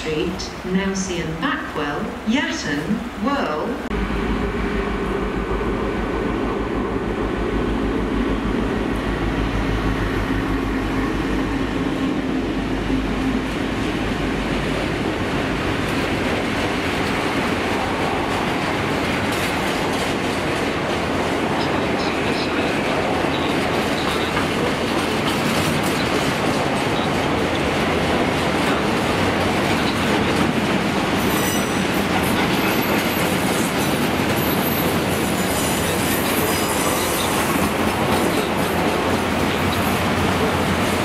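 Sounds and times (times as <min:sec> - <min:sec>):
diesel locomotive engine: 0:00.0 - 0:41.0
freight wagons clattering over rail joints: 0:23.2 - 0:41.0.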